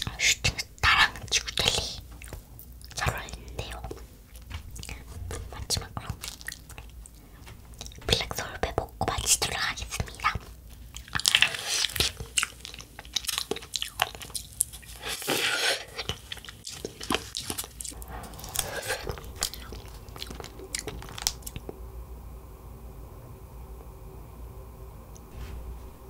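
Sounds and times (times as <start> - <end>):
faint steady background noise: 0.0 - 26.0
crunching and chewing cone: 10.2 - 21.8.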